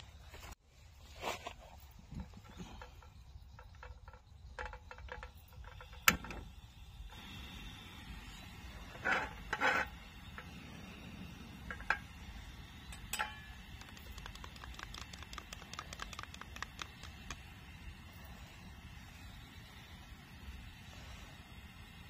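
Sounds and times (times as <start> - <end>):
light rapid clicks: 13.6 - 17.5.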